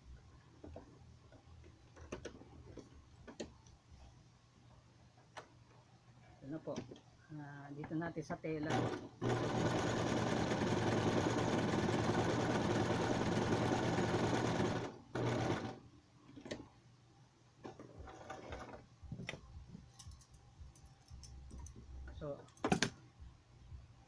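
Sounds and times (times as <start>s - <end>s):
sewing machine stitching: 8.7s - 15.8s, 17.6s - 18.8s.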